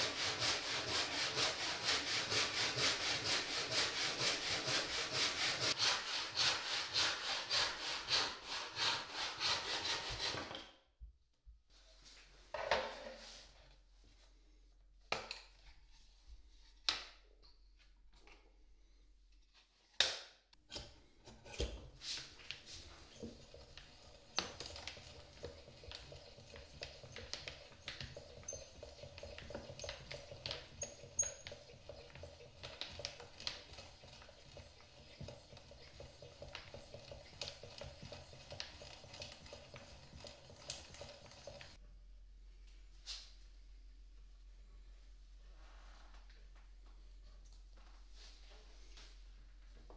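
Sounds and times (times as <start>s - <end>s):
hand brace bit cutting wood: 24.4s - 41.8s.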